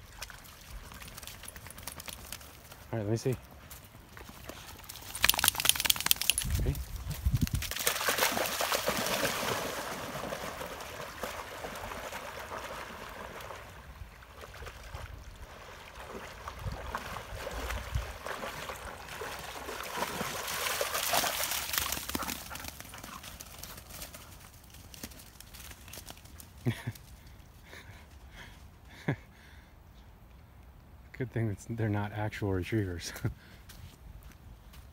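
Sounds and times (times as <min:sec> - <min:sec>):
dogs splashing through water: 0:00.0 - 0:02.9, 0:04.2 - 0:06.6, 0:07.4 - 0:26.3
river water rushing and gurgling: 0:08.1 - 0:22.0.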